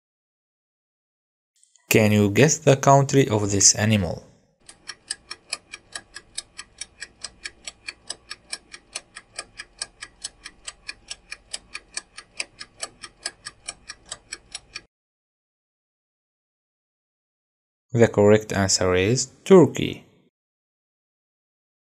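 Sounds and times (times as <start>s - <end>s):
countdown timer ticking: 4.6s - 14.9s.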